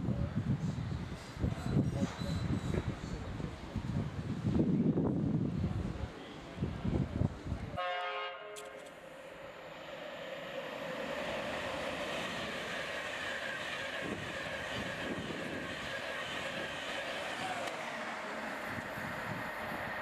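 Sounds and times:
train rushing past: 0.6 - 20.0
train horn blast: 7.8 - 8.9.

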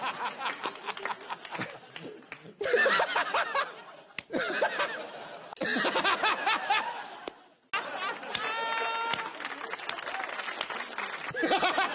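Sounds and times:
man laughing: 2.6 - 7.0.

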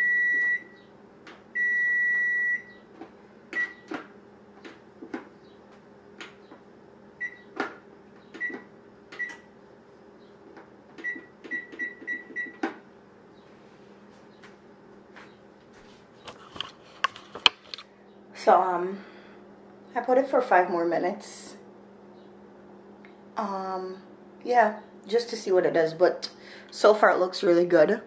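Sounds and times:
oven timer beeping: 0.0 - 0.9, 1.5 - 2.9, 3.5 - 4.0, 7.2 - 7.6, 8.3 - 9.5, 11.0 - 12.7.

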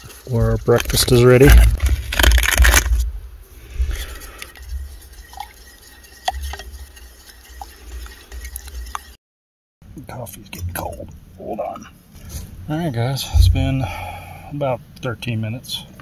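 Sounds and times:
low rumble: 2.9 - 4.1, 12.4 - 14.5.

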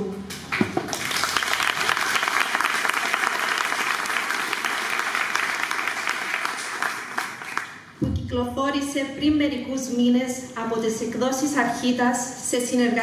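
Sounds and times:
audience applauding: 0.5 - 7.9.

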